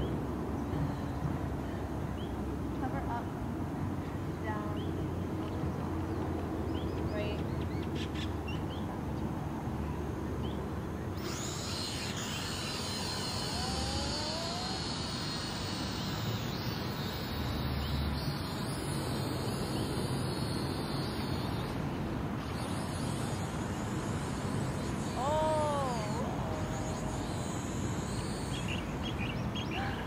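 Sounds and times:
toy drone propeller whine: 0:11.1 - 0:21.8, 0:22.4 - 0:30.0.

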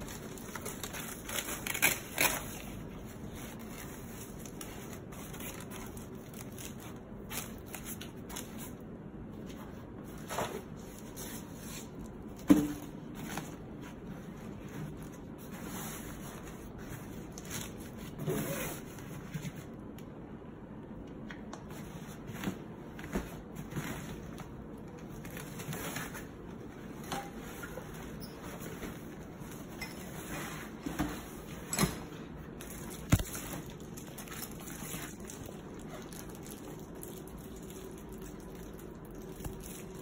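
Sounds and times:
fabric rustling and scraping: 0:25.4 - 0:36.1.

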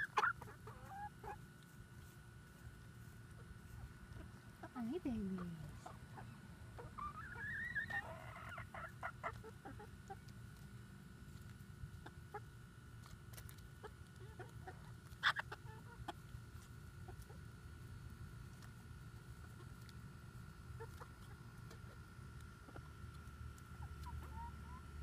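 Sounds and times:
hens clucking: 0:00.0 - 0:10.6, 0:13.3 - 0:17.5, 0:20.7 - 0:25.0.

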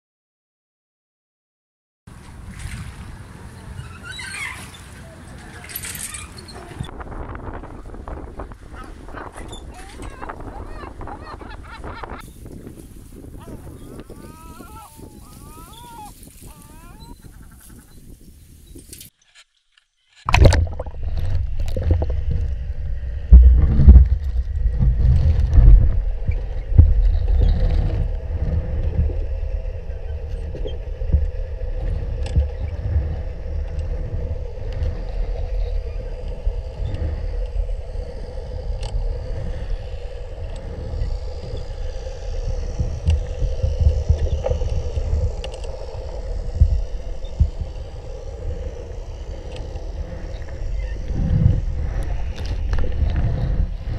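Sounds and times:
underwater boat engine rumble: 0:02.1 - 0:16.1, 0:20.3 - 0:53.9
steady hum: 0:20.3 - 0:53.9
faint clicks: 0:30.3 - 0:53.9.

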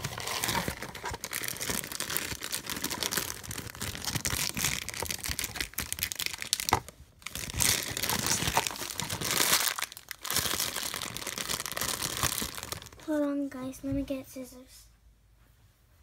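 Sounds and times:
cardboard tearing: 0:00.0 - 0:12.8
foil bag crinkling: 0:00.0 - 0:13.0.

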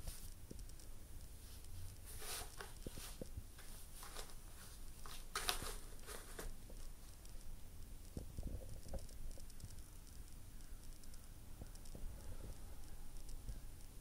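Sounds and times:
cat scratching cardboard: 0:02.0 - 0:06.5.

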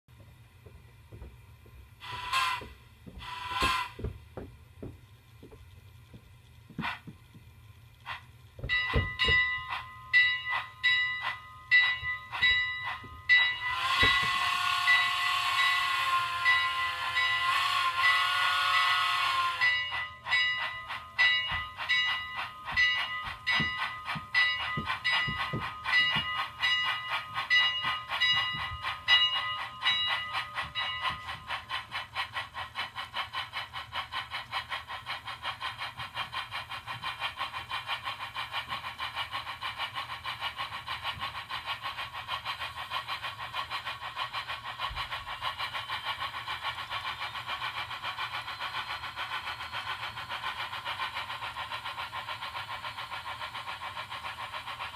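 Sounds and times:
model train steam chuffs: 0:00.2 - 0:54.9
multi-tone steam whistle: 0:02.0 - 0:04.1, 0:08.9 - 0:31.9.

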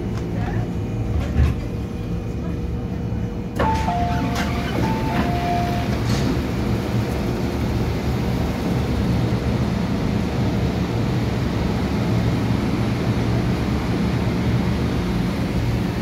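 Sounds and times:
train rumble and hum: 0:00.0 - 0:16.0
two-tone door chime: 0:03.6 - 0:06.2.

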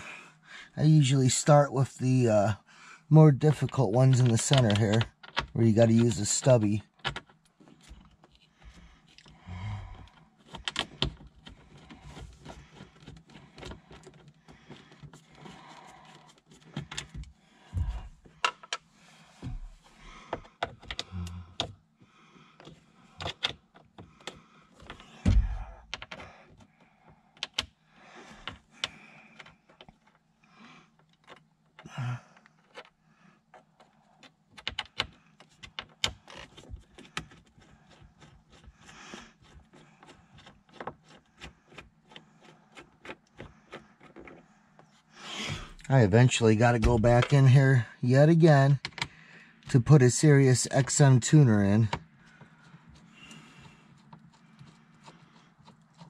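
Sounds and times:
clicks and taps on plastic trim: 0:03.7 - 0:09.3, 0:10.0 - 0:18.8, 0:19.4 - 0:21.8, 0:33.6 - 0:45.0, 0:48.8 - 0:49.2
heavier thumps: 0:17.8 - 0:18.2, 0:25.2 - 0:25.8.

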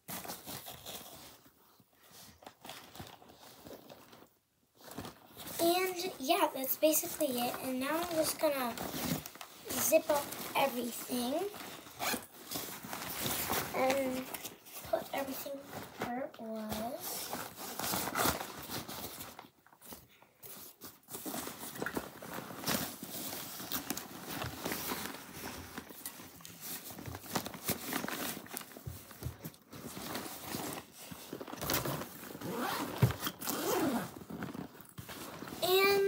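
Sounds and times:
fabric rustling: 0:00.1 - 0:36.0
zippers being pulled: 0:11.9 - 0:12.3, 0:31.6 - 0:34.8.

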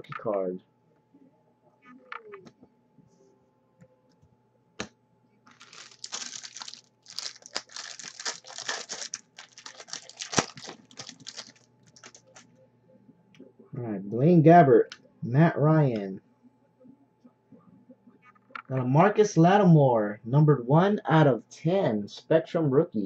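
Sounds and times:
foil wrapper tearing and crinkling: 0:05.5 - 0:12.4.

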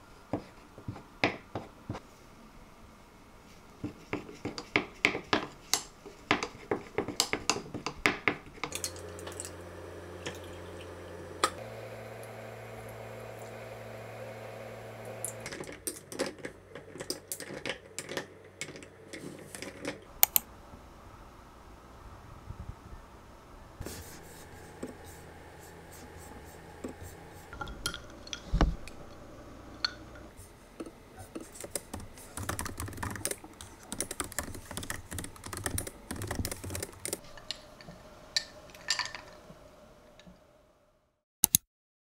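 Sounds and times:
steady low hum: 0:08.7 - 0:15.6, 0:23.4 - 0:31.3.

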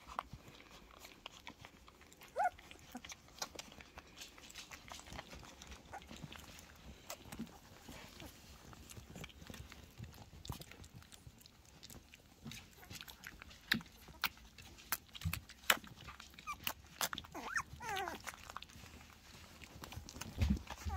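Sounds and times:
puppies sucking and smacking: 0:00.0 - 0:20.9
puppies squeaking: 0:02.2 - 0:03.6, 0:04.9 - 0:07.8, 0:15.7 - 0:19.0, 0:19.7 - 0:20.9.

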